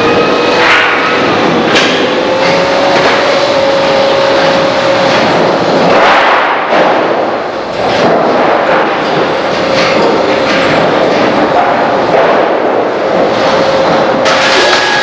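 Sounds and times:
sawmill machinery whining: 0.0 - 5.9, 13.4 - 15.0.

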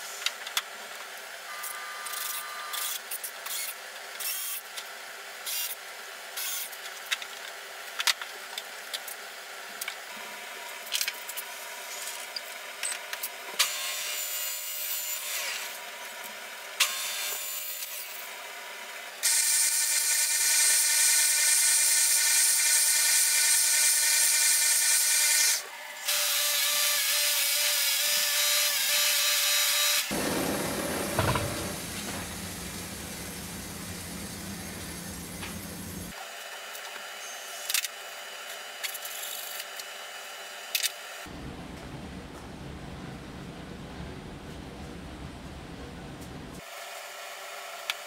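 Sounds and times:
scraping on wood: 30.1 - 33.0
spindle sander sanding wood: 30.1 - 36.1.

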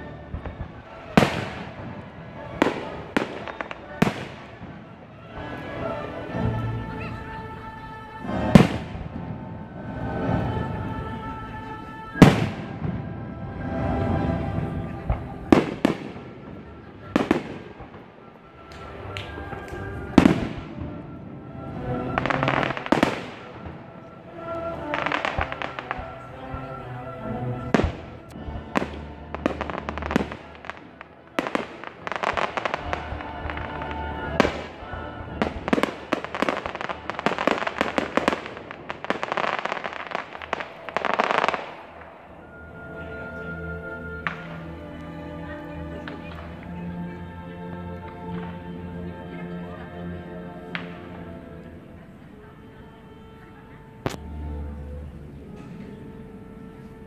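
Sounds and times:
firework crackles: 0.0 - 5.8, 21.8 - 26.6, 28.8 - 42.4
classical music: 0.0 - 57.0
firework bangs: 0.3 - 5.5, 22.1 - 23.9, 24.8 - 26.2
fast crackling pops: 22.2 - 23.6.

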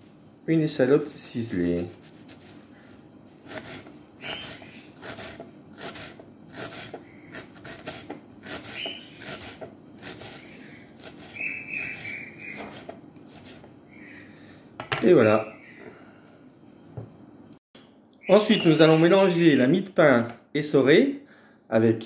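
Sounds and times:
knife chopping on wooden board: 11.9 - 13.6.

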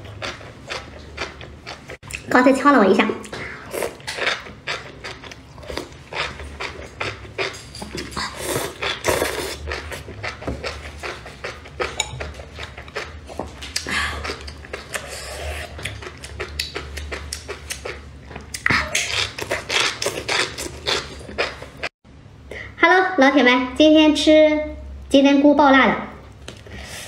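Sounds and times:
slurping noodles: 3.3 - 13.1, 13.8 - 18.0.

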